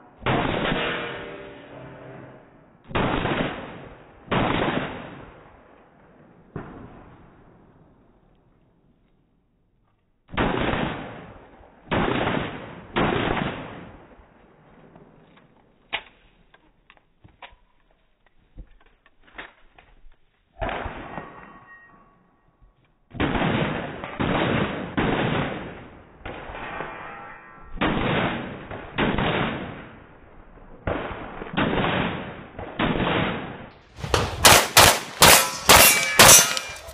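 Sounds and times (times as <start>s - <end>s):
handgun shots with ringing echo: 34.1s - 36.9s.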